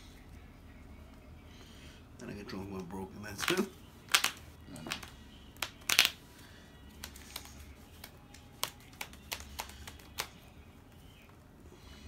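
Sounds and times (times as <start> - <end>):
cards tapping on playmat: 3.4 - 6.2, 6.9 - 10.4
light card clicks: 7.0 - 10.4.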